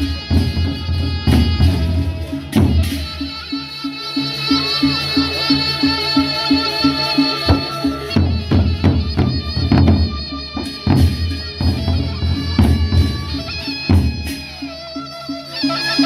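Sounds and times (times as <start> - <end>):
barrel drums beaten: 0.0 - 3.5, 7.0 - 14.8
held melody: 0.0 - 16.0.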